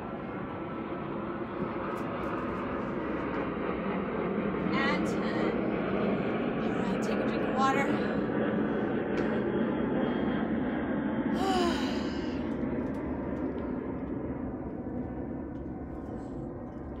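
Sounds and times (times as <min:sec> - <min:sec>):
aircraft rumble passing over: 0:00.0 - 0:17.0
breathy sigh: 0:11.3 - 0:12.5.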